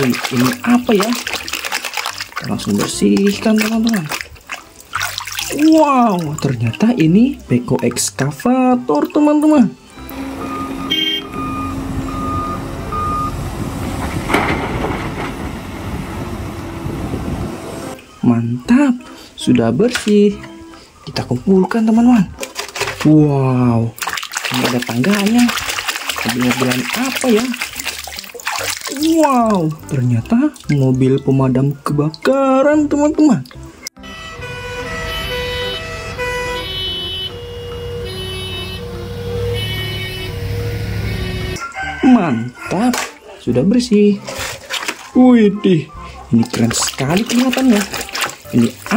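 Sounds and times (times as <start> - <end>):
instrumental music with held notes: 0.0 - 13.5, 17.9 - 23.2, 25.1 - 41.8
reversing alarm beeping: 9.8 - 13.4, 34.0 - 41.6
steady rumbling: 10.3 - 18.0.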